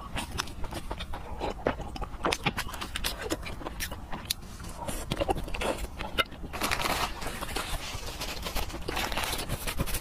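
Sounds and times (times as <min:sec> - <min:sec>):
chewing food: 0:00.0 - 0:10.0.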